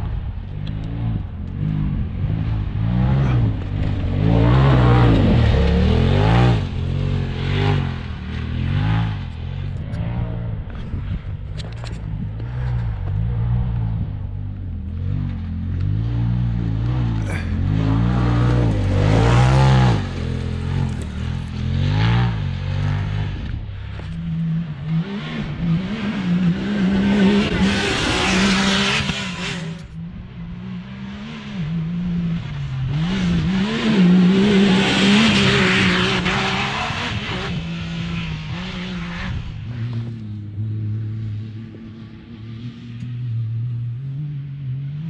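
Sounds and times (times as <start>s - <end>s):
tyres on loose dirt and gravel: 0.0s - 25.0s
utility vehicle engines revving: 0.0s - 45.0s.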